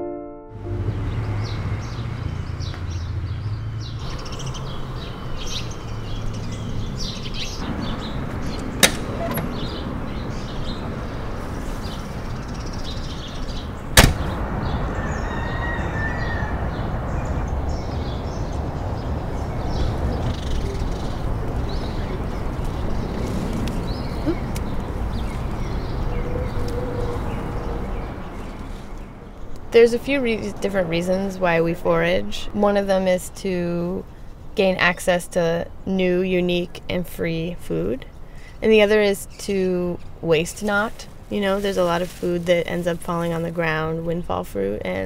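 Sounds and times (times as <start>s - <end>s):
birds chirping: 0.6s - 45.0s
car door slamming shut: 8.8s - 9.7s, 14.0s - 14.4s.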